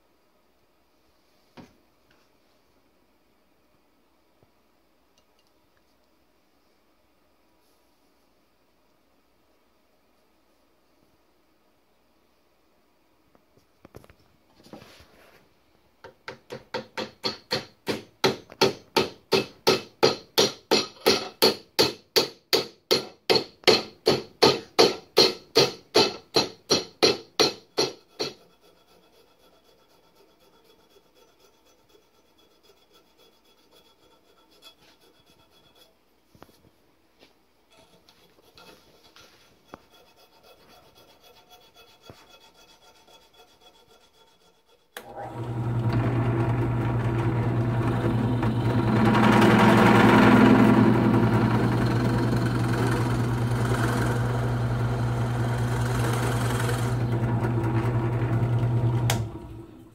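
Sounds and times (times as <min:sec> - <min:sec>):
light faint scraping: 0:13.6 - 0:15.6, 0:28.2 - 0:44.8
hand file rasping on wood: 0:24.5 - 0:36.0, 0:38.2 - 0:45.0.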